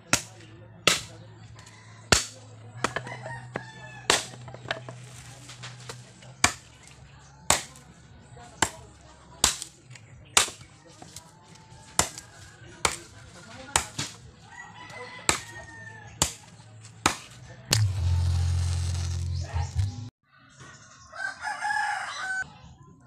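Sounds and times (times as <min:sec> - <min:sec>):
machete chopping wood: 0:00.0 - 0:01.2, 0:02.1 - 0:04.8, 0:05.9 - 0:06.9, 0:07.5 - 0:07.8, 0:08.6 - 0:11.2, 0:12.0 - 0:13.1, 0:13.7 - 0:14.2, 0:15.3 - 0:15.5, 0:16.2 - 0:18.1
rooster crowing: 0:21.1 - 0:22.5.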